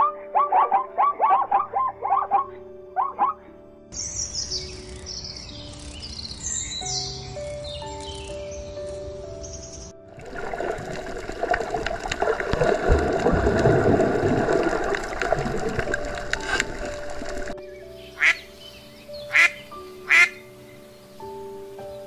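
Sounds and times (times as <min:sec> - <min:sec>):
ducks quacking: 0:00.0 - 0:03.5, 0:18.2 - 0:18.5, 0:19.3 - 0:20.4
background music: 0:00.0 - 0:22.0
dense crackling rushing noise: 0:10.2 - 0:17.6.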